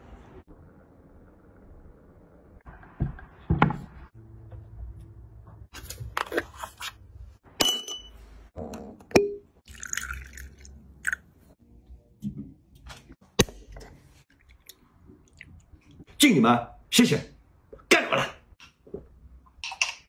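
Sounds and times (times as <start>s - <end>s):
kitchen knocks and taps: 2.9s - 4.1s.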